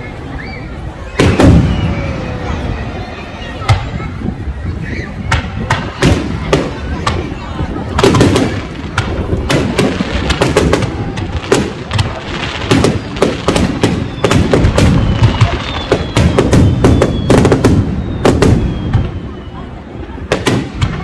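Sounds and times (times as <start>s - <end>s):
fireworks bursting: 0.1s - 21.0s.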